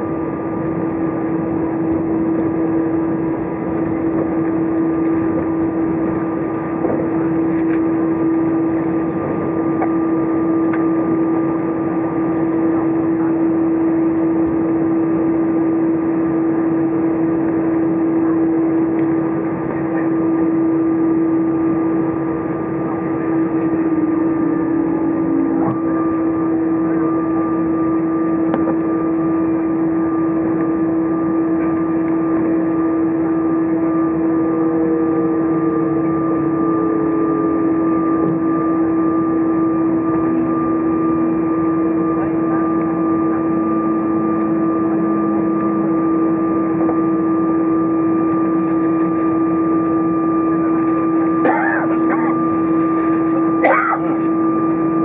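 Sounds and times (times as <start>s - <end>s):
jet engines idling hum: 0.0s - 55.0s
aircraft cabin rush: 0.1s - 37.8s, 50.6s - 55.0s.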